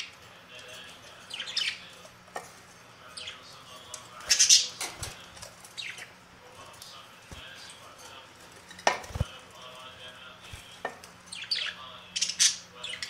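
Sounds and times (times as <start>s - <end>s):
budgerigars calling: 1.2s - 1.9s, 4.2s - 4.8s, 11.3s - 13.0s.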